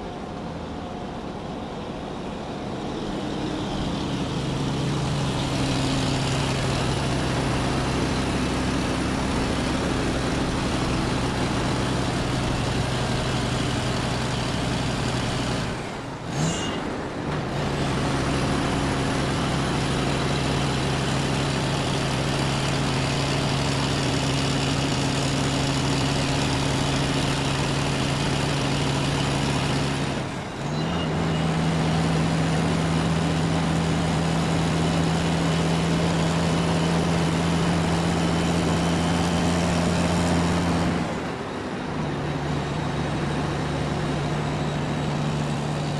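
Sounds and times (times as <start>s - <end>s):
heavy vehicle engine humming: 0.0s - 45.9s.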